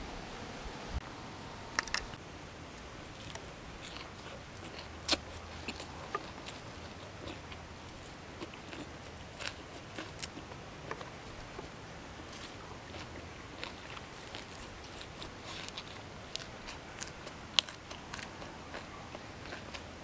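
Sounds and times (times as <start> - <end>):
mouth clicks: 1.7 - 2.2
person chewing crunchy greens: 2.7 - 20.0.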